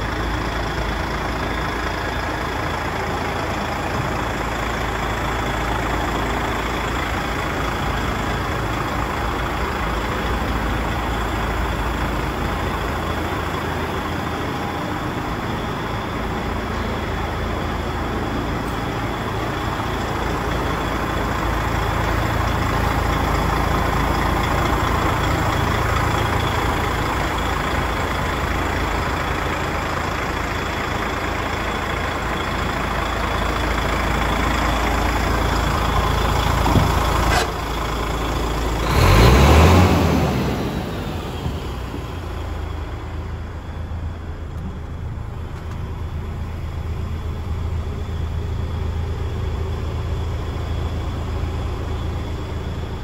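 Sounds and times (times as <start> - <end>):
diesel engine idling: 0.0 - 53.0.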